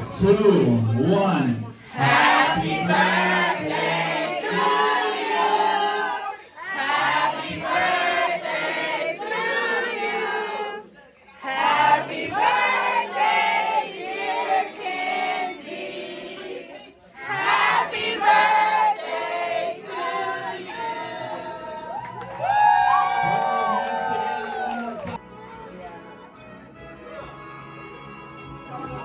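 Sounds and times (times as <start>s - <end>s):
voices singing together: 1.9s - 22.2s.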